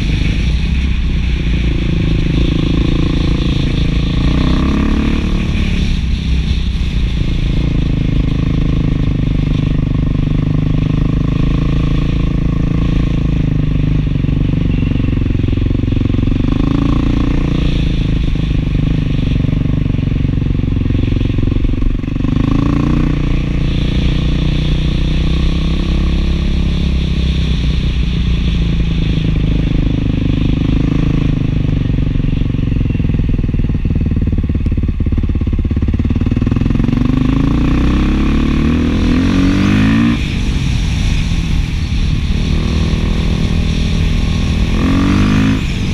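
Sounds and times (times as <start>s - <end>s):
motorcycle engine running: 0.0s - 45.9s.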